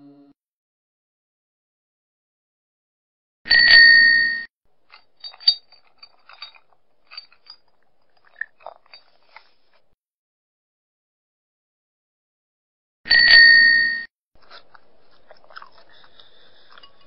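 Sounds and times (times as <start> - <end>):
bicycle bell ringing: 3.5 - 4.4, 13.1 - 14.1
faint metallic clinks: 4.8 - 9.6.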